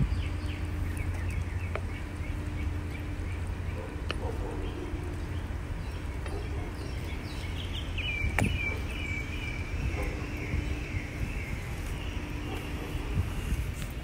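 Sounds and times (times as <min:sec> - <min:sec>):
high wavering chirping: 0:00.0 - 0:14.0
steady low rumble: 0:00.0 - 0:14.0.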